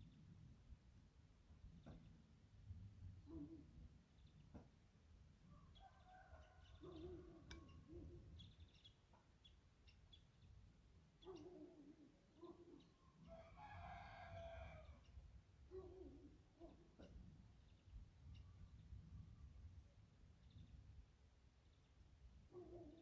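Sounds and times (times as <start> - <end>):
faint rooster crow: 5.4 - 8.3, 13.1 - 15.8
bird calls: 5.5 - 10.6, 11.2 - 13.1.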